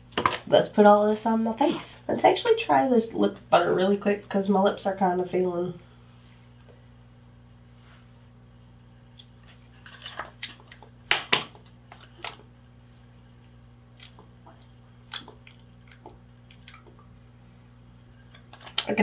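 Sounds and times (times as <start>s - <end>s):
faint steady hum: 0.0s - 19.0s
wet lip smacks: 15.1s - 17.1s.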